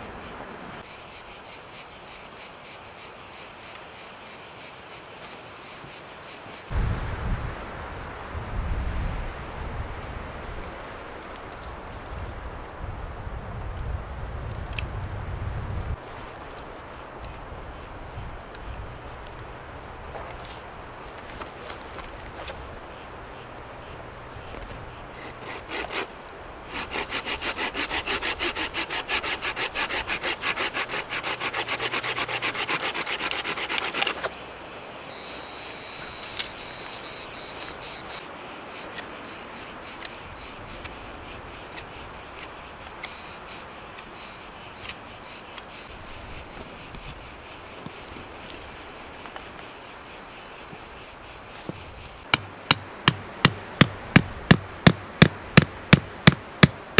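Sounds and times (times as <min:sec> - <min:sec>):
cicadas chorus: 0:00.0 - 0:56.9
saw cutting a dry branch: 0:25.1 - 0:34.3, 0:52.3 - 0:56.9.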